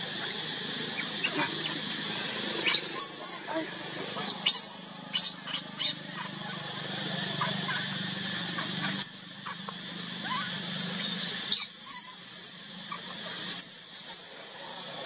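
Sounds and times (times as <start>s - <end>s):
infant monkey screaming: 0.0s - 2.0s, 2.6s - 15.0s.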